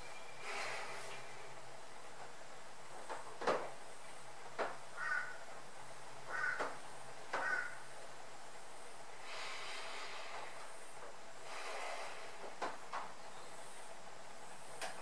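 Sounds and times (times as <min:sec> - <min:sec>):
faint steady hum: 0:00.0 - 0:15.0
soft breathing: 0:00.3 - 0:01.5, 0:08.7 - 0:12.7.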